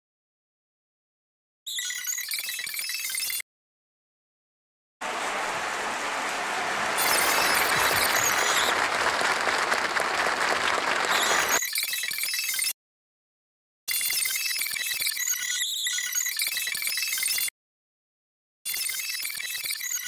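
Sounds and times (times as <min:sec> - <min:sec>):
audience applause: 0:05.0 - 0:11.6.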